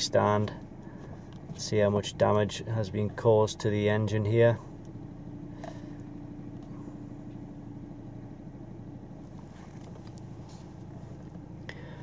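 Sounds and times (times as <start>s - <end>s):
car engine hum inside cabin: 0.0s - 12.0s.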